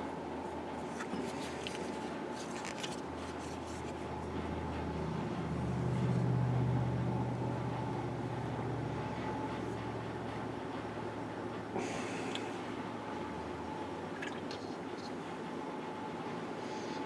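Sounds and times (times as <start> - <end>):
low mechanical hum: 0.0 - 17.0
wooden carving being handled: 0.8 - 4.2.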